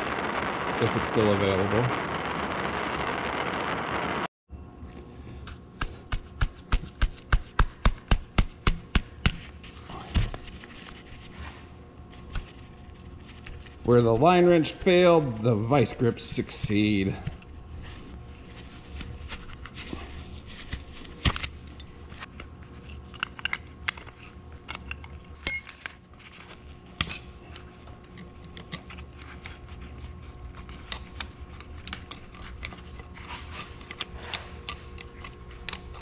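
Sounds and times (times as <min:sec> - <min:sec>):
steady low hum: 0:00.0 - 0:36.0
metal tools clinking: 0:24.7 - 0:26.0.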